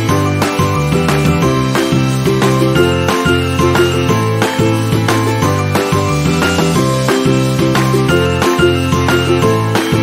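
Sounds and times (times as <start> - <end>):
instrumental music with steady beat: 0.0 - 10.0.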